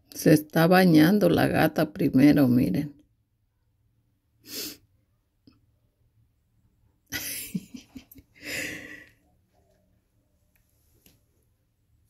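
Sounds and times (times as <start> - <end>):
person exhaling breathily: 8.4 - 9.2.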